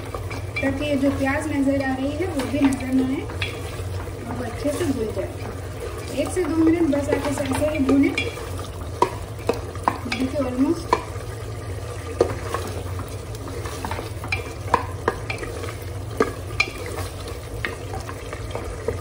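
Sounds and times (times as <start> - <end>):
wooden spatula scraping a pot: 0.0 - 8.4, 12.1 - 18.6
low sizzle of frying: 0.0 - 19.0.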